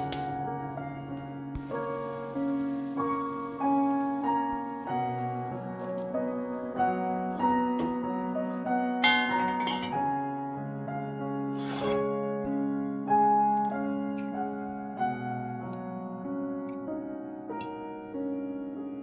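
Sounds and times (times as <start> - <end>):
gentle piano music: 0.0 - 19.0.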